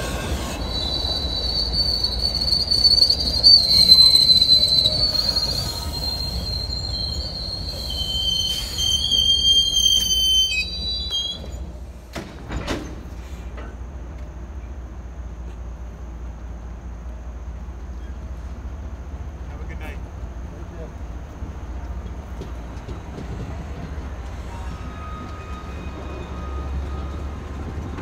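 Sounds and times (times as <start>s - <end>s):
train wheels squealing: 0.0s - 12.0s, 17.9s - 18.4s, 22.3s - 28.0s.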